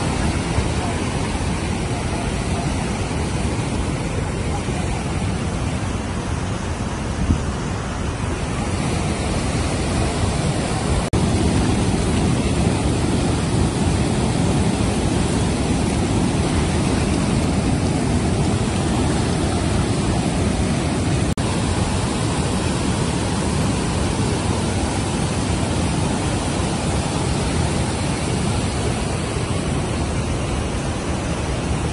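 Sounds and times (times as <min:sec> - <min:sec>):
roar of rushing water: 0:00.0 - 0:31.9.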